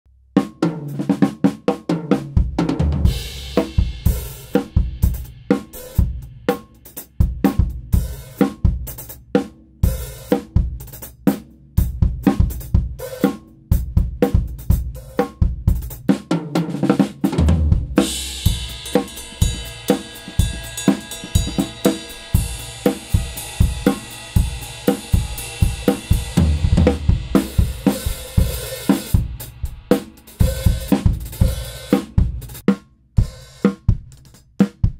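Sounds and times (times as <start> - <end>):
cymbals ringing: 18.1 - 26.4
kick drum: 33.2 - 34.9.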